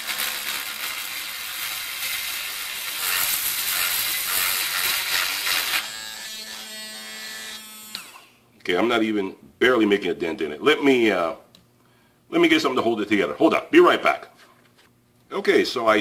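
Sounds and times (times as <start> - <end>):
rotary tool motor whine: 7.4 - 8.3.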